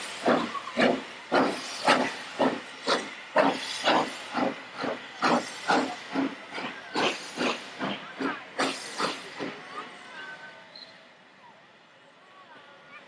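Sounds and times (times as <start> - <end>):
steam hissing: 0.0 - 10.3
steam locomotive chuffing: 0.0 - 11.9.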